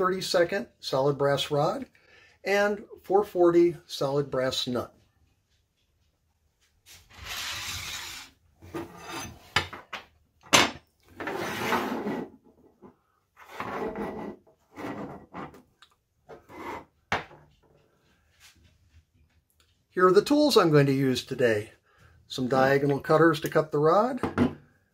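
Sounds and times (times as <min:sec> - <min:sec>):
tools scraping across tabletop: 0:06.8 - 0:09.8, 0:11.0 - 0:15.7, 0:16.3 - 0:17.5.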